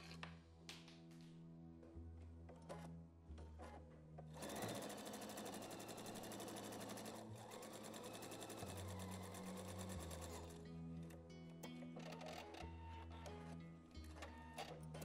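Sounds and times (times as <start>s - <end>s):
sewing machine stitching: 4.4s - 10.6s.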